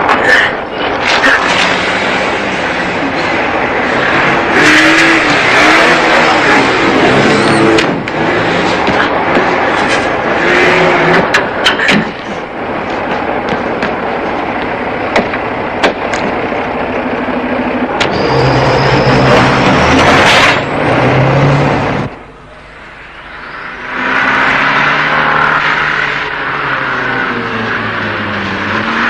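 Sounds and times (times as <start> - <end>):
engine hum: 0.0 - 29.0
heavy trucks on road: 0.0 - 29.0
high rising whine: 12.3 - 28.8.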